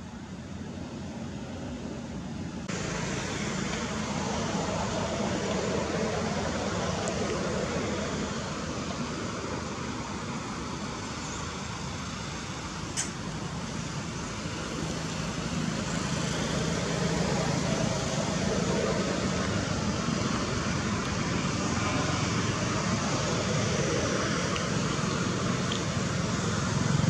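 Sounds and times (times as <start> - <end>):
outdoor rumble and hiss: 0.0 - 27.0
sharp click: 12.9 - 13.2.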